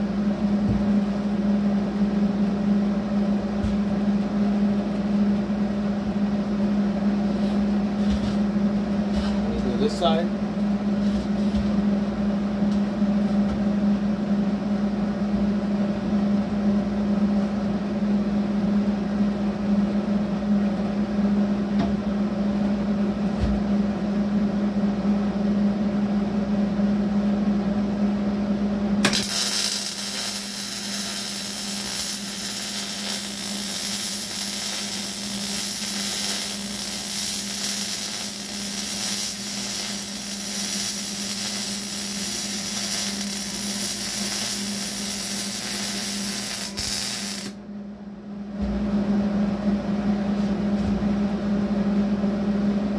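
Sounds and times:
steady hum: 0:00.0 - 0:52.9
welding arc crackling hiss: 0:29.0 - 0:47.6.

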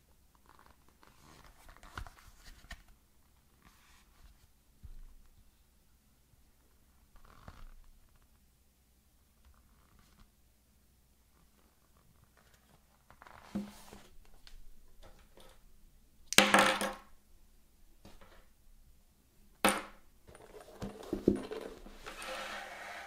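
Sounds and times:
rustling scrapes: 0:20.3 - 0:23.0.

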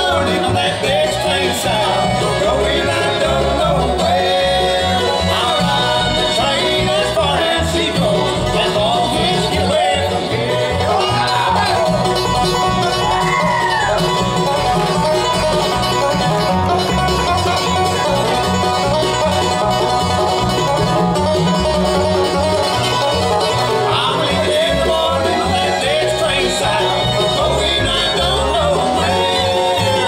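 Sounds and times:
banjo lead: 0:00.0 - 0:30.0
bluegrass band playing: 0:00.0 - 0:30.0
fiddle phrases: 0:00.0 - 0:30.0.

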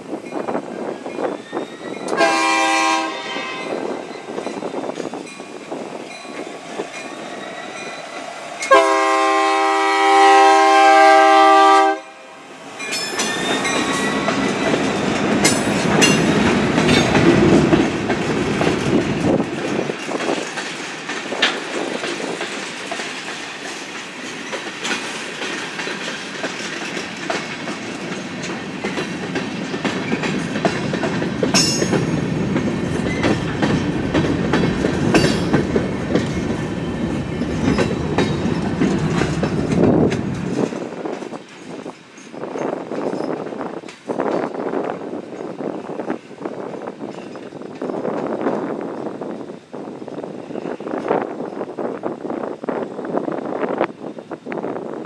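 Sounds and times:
train wheels clicking on rails: 0:00.0 - 0:10.4, 0:12.6 - 0:55.0
locomotive rumbling past: 0:00.0 - 0:43.8
locomotive horn blasts: 0:02.1 - 0:03.9, 0:08.7 - 0:12.5.

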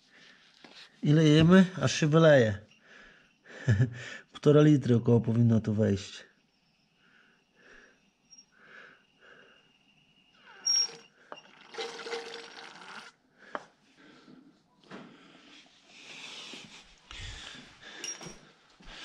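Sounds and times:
oil gurgling and squelching: 0:10.6 - 0:13.2.

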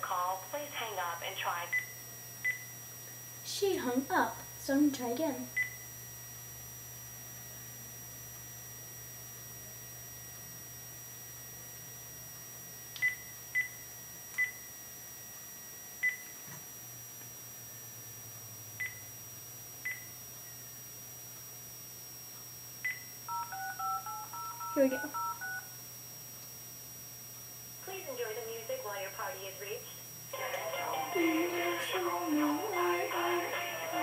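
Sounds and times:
phone keypad beeps: 0:22.9 - 0:25.7.

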